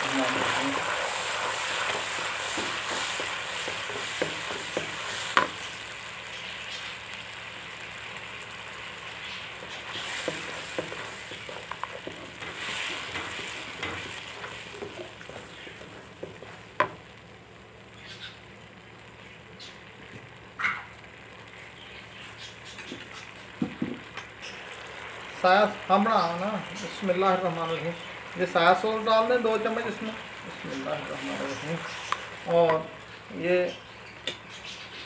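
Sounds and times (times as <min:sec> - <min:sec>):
sauce sizzling in hot pan: 0:00.0 - 0:35.0
spatula knocking on pan: 0:02.6 - 0:05.6
wooden spatula stirring: 0:09.5 - 0:16.9.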